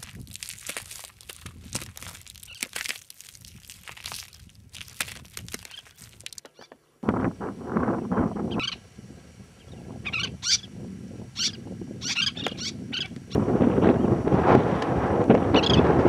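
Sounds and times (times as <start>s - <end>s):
wind buffeting microphone: 0.0s - 2.6s, 3.4s - 6.2s, 7.0s - 16.0s
footsteps crunching on salt crust: 0.0s - 6.6s
bird giving sharp high calls: 10.0s - 10.7s, 11.4s - 13.2s.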